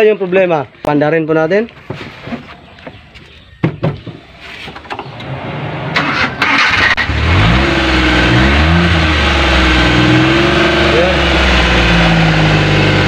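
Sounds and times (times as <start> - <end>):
car engine cranking and running: 4.8 - 13.0.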